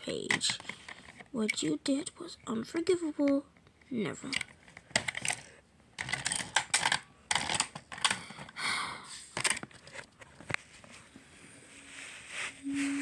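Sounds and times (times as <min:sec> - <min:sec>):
plastic toy train clicks and taps: 0:00.2 - 0:01.6, 0:04.3 - 0:08.5.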